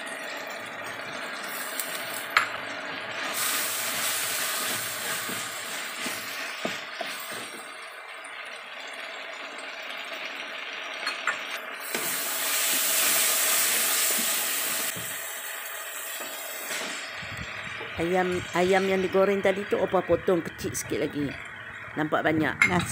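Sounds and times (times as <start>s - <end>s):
greens sizzling in a wok: 0.0s - 22.1s.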